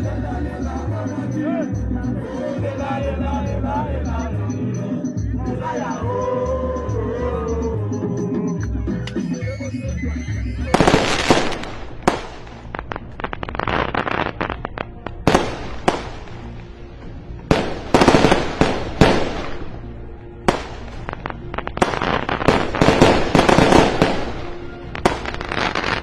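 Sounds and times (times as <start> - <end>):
faint music: 0.0 - 26.0
fireworks bursting: 10.7 - 16.7, 17.4 - 26.0
fireworks crackling: 10.7 - 26.0.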